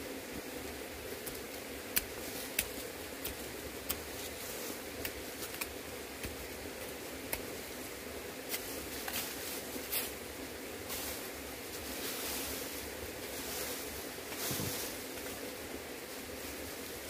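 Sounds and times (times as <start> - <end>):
hand hoe scraping soil and stones: 13.3 - 15.0.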